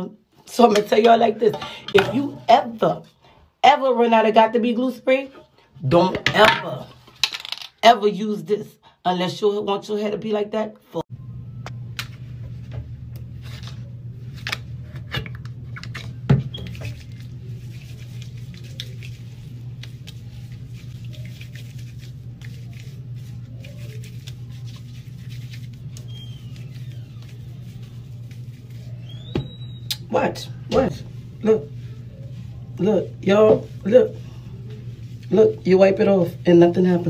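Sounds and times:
steady low hum: 11.1 - 37.0
hands rubbing and patting hair: 15.9 - 37.0.

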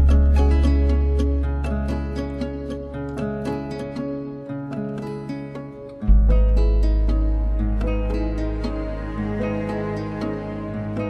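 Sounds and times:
plucked string notes: 0.0 - 11.0
deep held bass note: 6.1 - 8.7.

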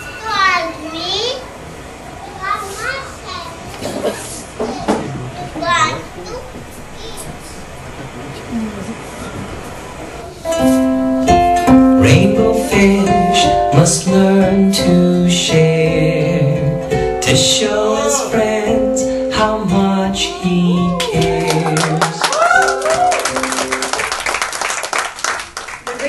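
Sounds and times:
plucked string instrument: 10.4 - 22.0
person singing: 11.6 - 23.0.

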